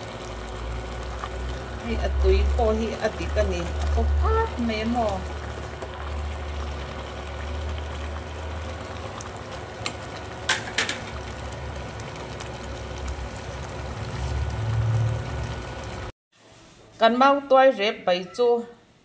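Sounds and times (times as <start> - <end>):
stew bubbling in a pot: 0.0 - 16.1.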